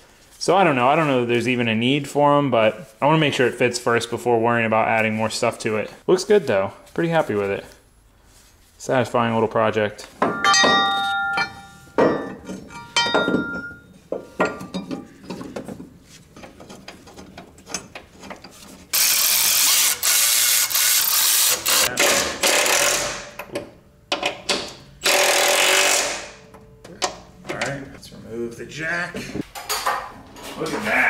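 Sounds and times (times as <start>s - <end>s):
steel bracket clanking: 10.2s - 18.6s
ratchet clicking: 19.0s - 23.2s.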